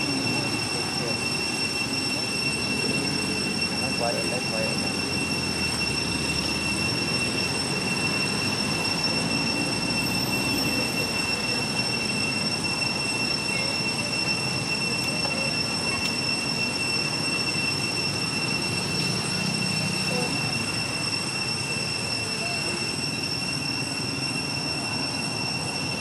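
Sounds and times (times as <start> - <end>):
high-pitched whine: 0.0 - 26.0.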